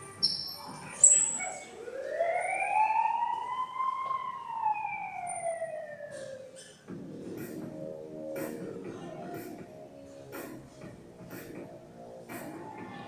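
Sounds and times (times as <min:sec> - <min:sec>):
siren-like wail: 0:01.3 - 0:06.6.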